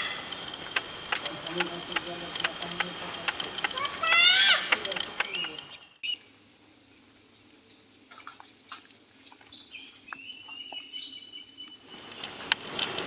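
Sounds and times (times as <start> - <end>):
faint bird chirps: 9.4 - 12.2.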